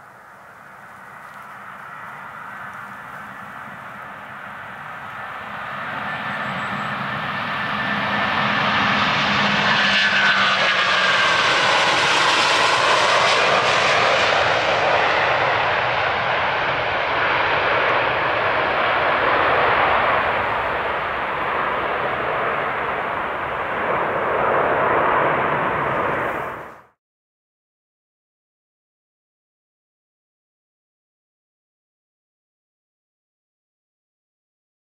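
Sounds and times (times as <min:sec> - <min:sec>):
jet engine whine: 0:00.0 - 0:27.0
jet taking off roar: 0:00.0 - 0:27.0.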